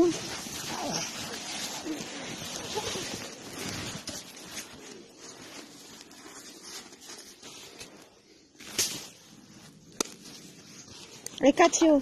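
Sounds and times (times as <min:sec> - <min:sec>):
clothing rustling: 0:00.0 - 0:12.0
footsteps crunching in snow: 0:00.0 - 0:12.0.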